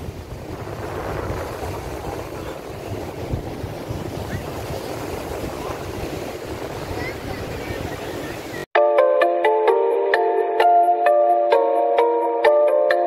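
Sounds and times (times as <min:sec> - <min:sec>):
surf breaking on beach: 0:00.0 - 0:08.7
wind buffeting microphone: 0:00.0 - 0:08.7.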